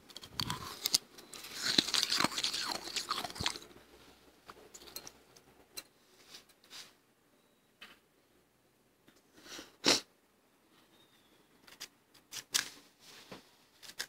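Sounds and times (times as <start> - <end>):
frost crunching while chewed: 0.0 - 3.8.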